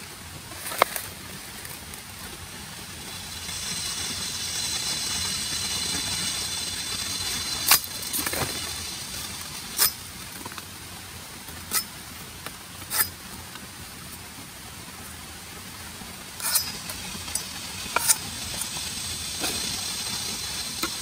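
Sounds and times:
high shrill steady buzz: 2.7s - 10.2s, 16.4s - 21.0s.

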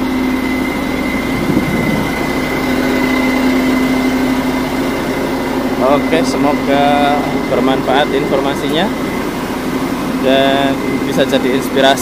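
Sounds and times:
high whine: 0.0s - 9.1s
truck diesel engine idling: 0.0s - 12.0s.

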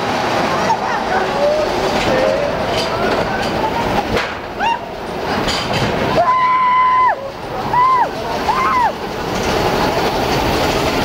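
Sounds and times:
ride boat rumbling and clattering: 0.0s - 11.0s
riders crying out: 6.1s - 9.0s
long held scream: 6.2s - 9.0s.

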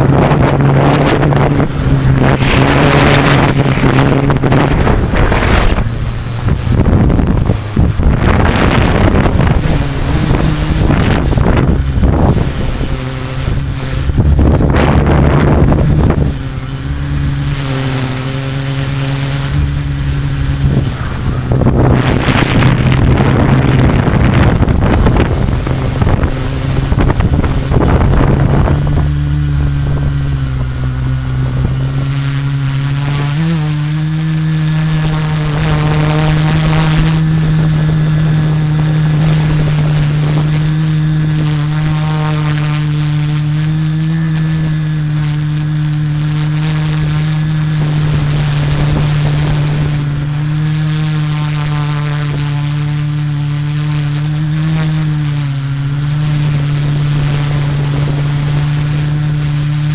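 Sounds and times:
drone motors humming: 0.0s - 59.9s
wind gusts over microphone: 0.0s - 59.9s.

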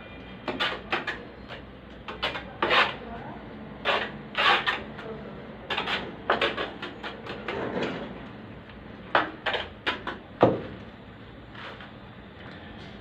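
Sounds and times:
metal trowel scraping adhesive: 0.4s - 3.0s, 3.8s - 5.0s, 5.7s - 7.6s.

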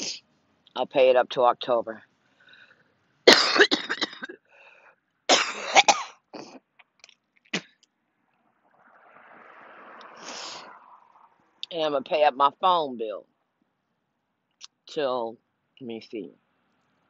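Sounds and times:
woman clearing throat: 3.3s - 4.4s
woman coughing: 3.3s - 4.4s, 5.3s - 6.6s.

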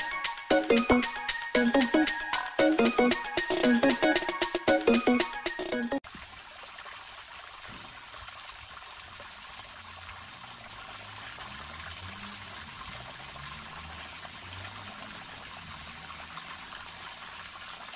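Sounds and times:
water pouring from pipe: 6.0s - 17.9s.

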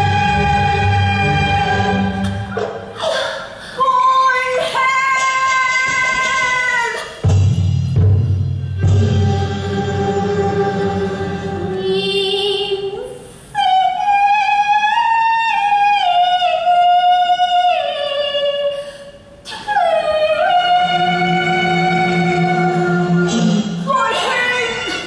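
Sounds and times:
high voice singing opera: 0.0s - 7.1s, 9.2s - 25.0s
instrumental accompaniment: 7.2s - 12.1s, 20.7s - 25.0s.

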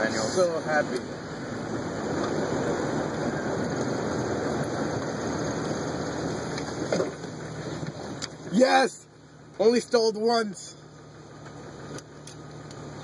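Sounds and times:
engine and tyres rumbling: 0.0s - 13.0s.

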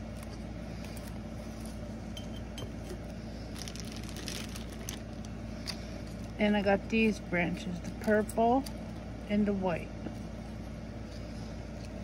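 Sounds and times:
low background hum: 0.0s - 12.0s
plastic bags rustling: 2.7s - 6.4s.

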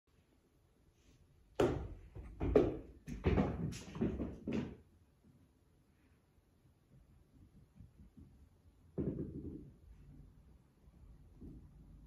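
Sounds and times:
ball bouncing on wooden floor: 1.6s - 4.8s, 8.9s - 9.8s
cat running on floor: 2.1s - 4.8s.

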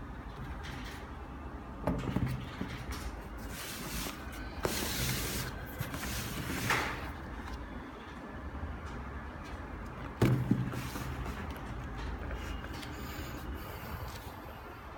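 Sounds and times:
cardboard box rustling: 3.4s - 7.6s, 10.0s - 14.4s.

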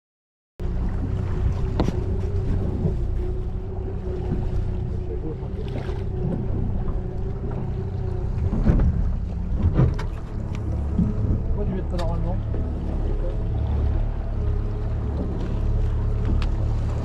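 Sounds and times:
boat engine droning: 0.6s - 17.0s
water noise: 0.6s - 17.0s
wind: 0.6s - 17.0s.

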